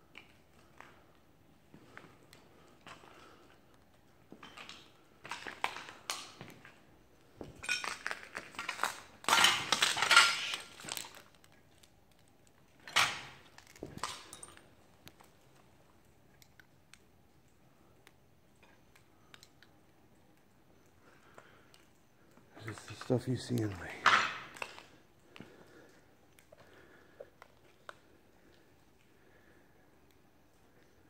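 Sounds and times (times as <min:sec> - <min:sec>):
footsteps crunching on broken glass: 0:07.4 - 0:11.9.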